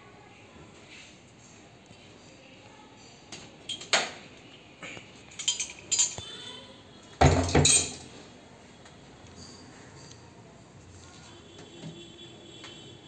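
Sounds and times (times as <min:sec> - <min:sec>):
metal tool clinking: 0:05.3 - 0:06.3, 0:07.3 - 0:08.1
metal clatter with thump: 0:07.2 - 0:08.1.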